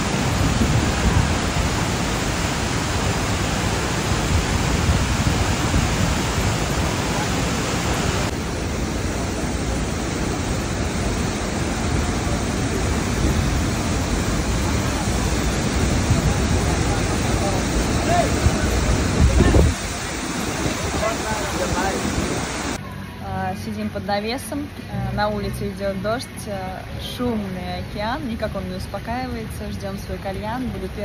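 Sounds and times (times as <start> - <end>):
waterfall rushing: 0.0 - 22.8.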